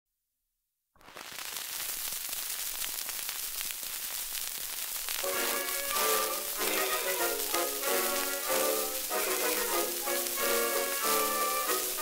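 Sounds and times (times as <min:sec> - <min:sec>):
record surface hiss and crackle: 0:01.0 - 0:12.0
dance orchestra playing: 0:05.3 - 0:12.0.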